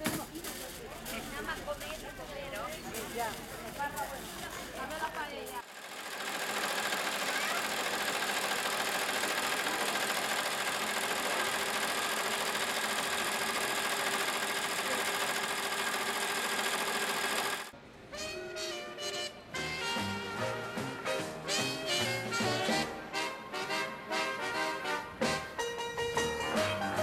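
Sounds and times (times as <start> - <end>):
embroidery machine running: 5.6 - 17.7.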